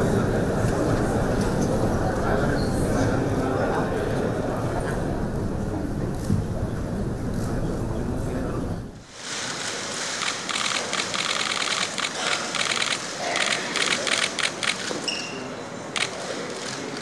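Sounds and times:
camera shutters clicking: 10.2 - 15.0.

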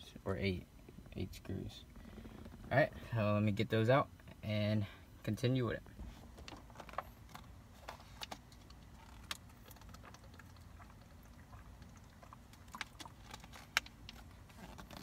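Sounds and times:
plastic water bottle crinkling: 6.4 - 15.0.

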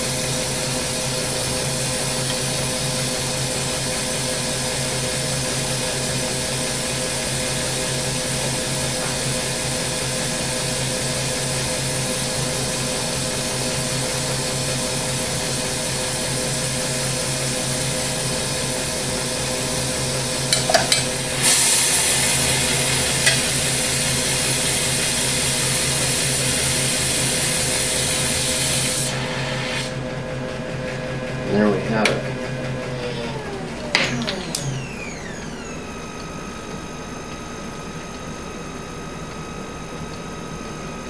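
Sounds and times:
steady machine hum: 0.0 - 41.0
torch flame hissing: 20.4 - 30.0.

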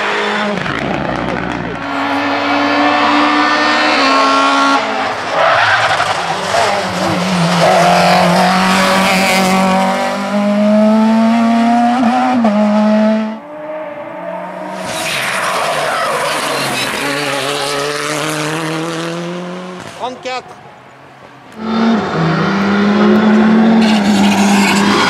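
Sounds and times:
rally car engines revving: 0.0 - 25.0
tyre squeal: 14.7 - 17.4, 23.8 - 25.0.

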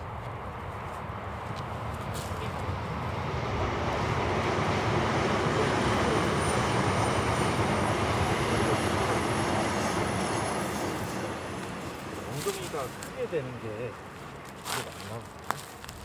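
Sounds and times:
passing vehicle engine: 0.0 - 14.1.

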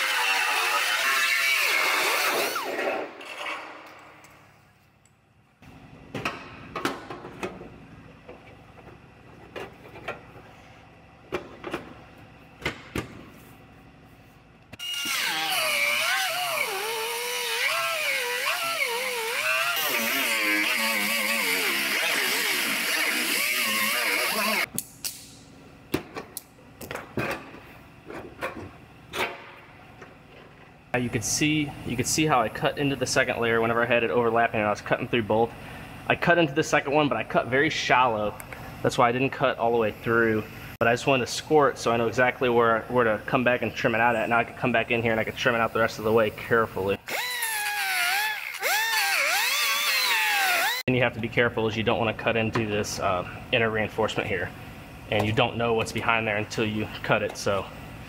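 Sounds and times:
pneumatic cutting tool whining: 0.0 - 3.6, 14.8 - 24.7, 47.1 - 50.8
tool spinning down: 47.1 - 50.8.

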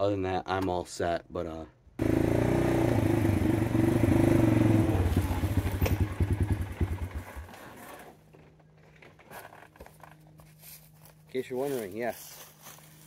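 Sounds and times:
atv engine winding down: 2.0 - 8.6.

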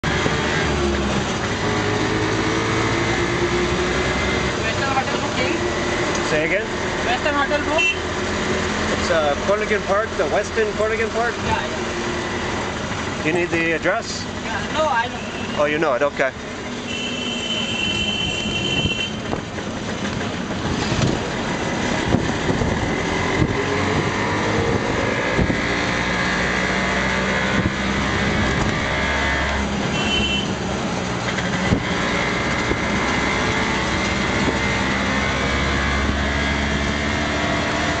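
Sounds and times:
road noise: 0.0 - 38.0.

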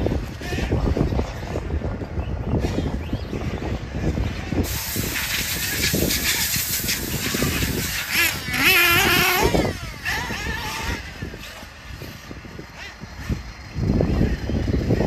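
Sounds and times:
rc car motor whine: 4.5 - 15.0.

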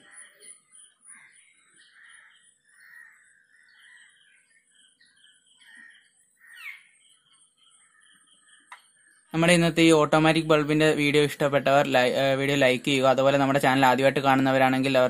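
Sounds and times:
faint bird calls: 0.0 - 9.4
high bird chirps: 0.0 - 9.8.

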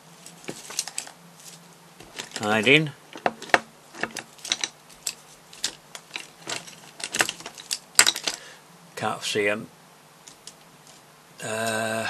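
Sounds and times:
tools and brushes clattering: 0.2 - 8.5.

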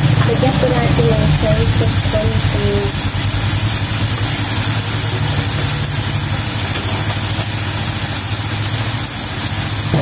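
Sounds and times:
onion and garlic sizzling in a wok: 0.0 - 10.0
steady low hum: 0.0 - 10.0.

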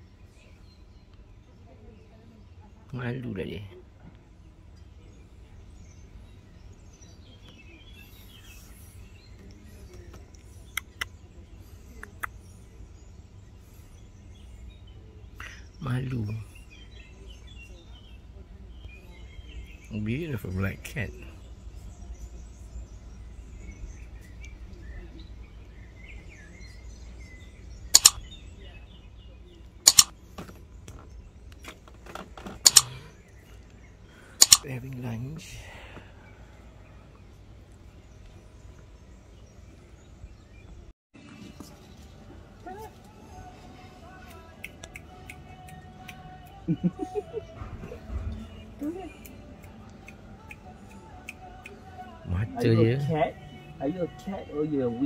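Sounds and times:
faint bird chirping: 0.0 - 55.0
outdoor background noise: 0.0 - 55.0
double mouse clicks: 28.0 - 28.2, 29.9 - 30.1, 32.6 - 32.9, 34.4 - 34.7
short sharp ticks: 28.0 - 28.2, 29.9 - 30.1, 32.7 - 32.9, 34.4 - 34.7.

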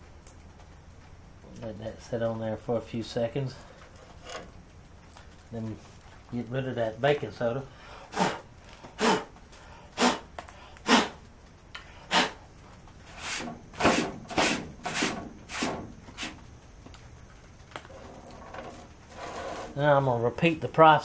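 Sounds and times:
short puffs of breath: 7.7 - 11.2, 11.8 - 12.4.

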